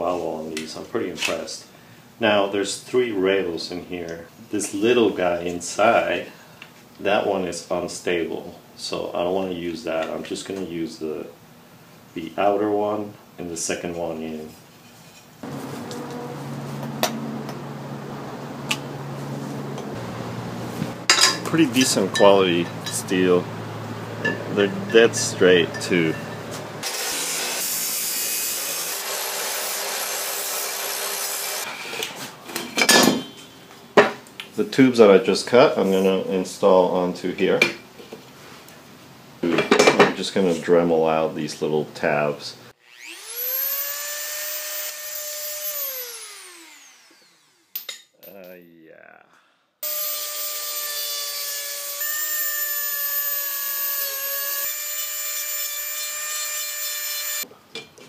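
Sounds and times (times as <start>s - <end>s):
chop saw grinding through steel: 21.2s - 23.5s, 24.2s - 31.8s, 42.8s - 48.0s, 49.8s - 57.5s.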